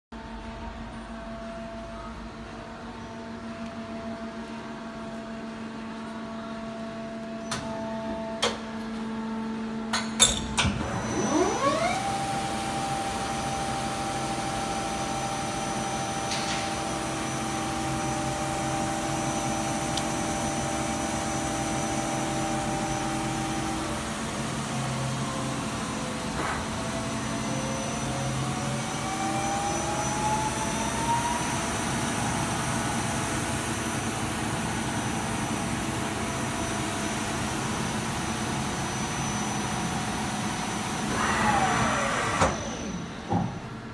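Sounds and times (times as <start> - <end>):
motor whine rising in pitch: 10.8 - 43.4
lathe machine hum: 10.9 - 43.4.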